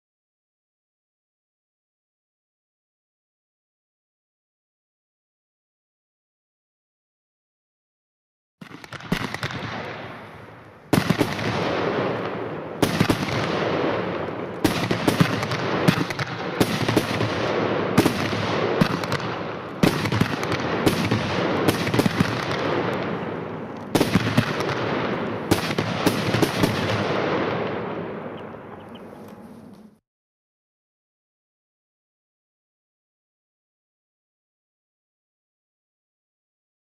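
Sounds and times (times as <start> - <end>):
firework bangs: 8.6 - 28.9
firework crackling: 8.6 - 29.9.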